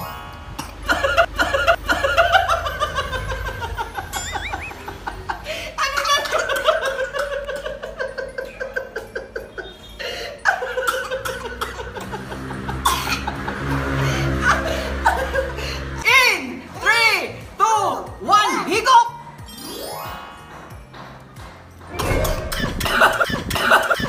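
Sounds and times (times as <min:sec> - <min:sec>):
background music: 0:00.0 - 0:24.0
hearty laughter: 0:00.9 - 0:16.0, 0:22.6 - 0:24.0.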